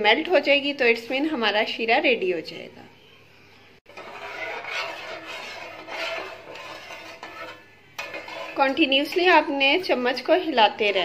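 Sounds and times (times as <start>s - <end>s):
ladle scraping a metal pan: 3.9s - 11.0s.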